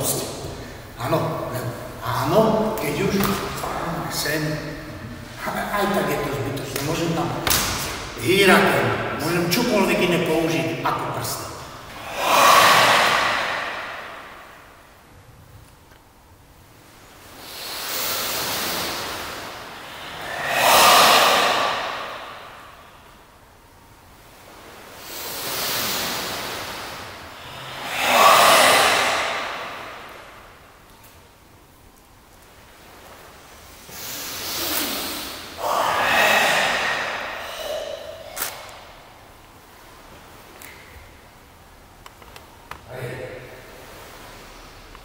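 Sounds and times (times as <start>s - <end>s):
long hissing breaths: 0.4s - 1.0s, 11.8s - 15.0s, 17.0s - 23.2s, 24.6s - 30.8s, 33.4s - 39.1s.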